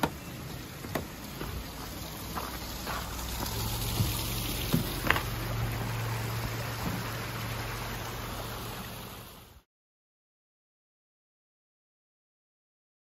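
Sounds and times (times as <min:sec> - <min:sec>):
footsteps on wooden footbridge: 0:00.0 - 0:07.2
water pouring into stream: 0:00.1 - 0:09.6.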